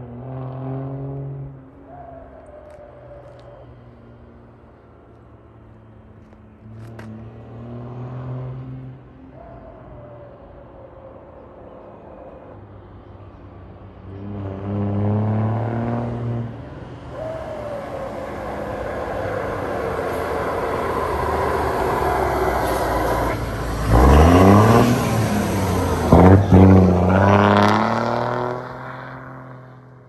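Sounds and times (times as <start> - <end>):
diesel truck accelerating past: 14.1 - 30.0.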